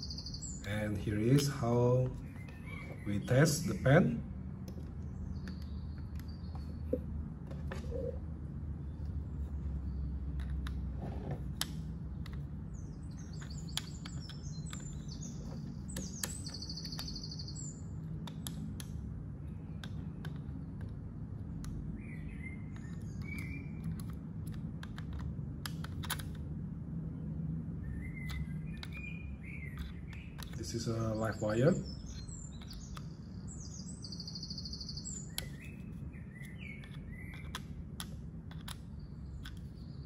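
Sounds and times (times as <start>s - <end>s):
bird trill: 0.0s - 0.7s, 12.8s - 17.8s, 22.0s - 23.8s, 27.8s - 37.6s
birds chirping: 0.0s - 10.2s, 12.1s - 18.4s, 21.8s - 24.1s, 27.1s - 40.0s
plastic clicks and taps: 22.8s - 26.4s, 29.8s - 30.6s, 36.4s - 39.7s.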